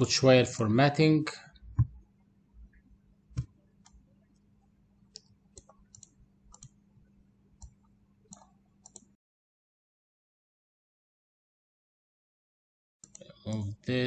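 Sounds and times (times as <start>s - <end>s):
faint steady hum: 0.0s - 9.2s, 13.0s - 14.0s
computer mouse clicking: 5.1s - 6.8s, 7.6s - 9.1s, 13.0s - 13.7s.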